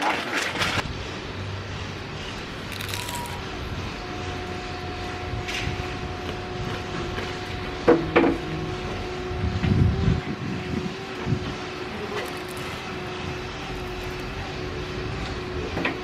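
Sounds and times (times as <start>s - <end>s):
mechanical hum: 0.0s - 16.0s.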